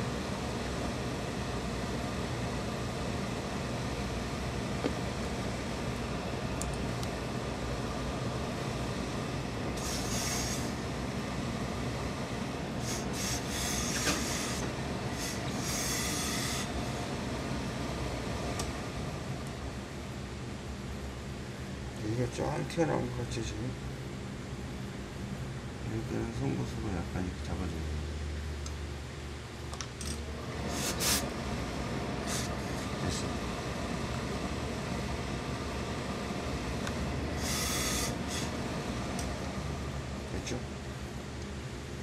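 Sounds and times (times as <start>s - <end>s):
rumbling machine hum: 0.0s - 42.0s
steam iron hissing: 9.7s - 10.8s, 12.8s - 16.8s, 30.6s - 31.3s, 32.2s - 32.9s, 37.3s - 38.6s.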